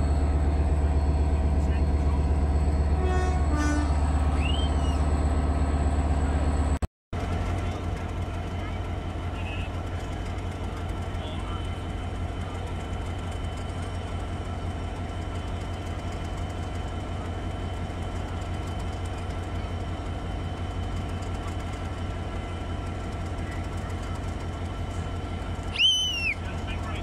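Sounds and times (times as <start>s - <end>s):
diesel locomotive engine idling: 0.0s - 27.0s
faint high whistle: 4.3s - 5.0s, 25.7s - 26.4s.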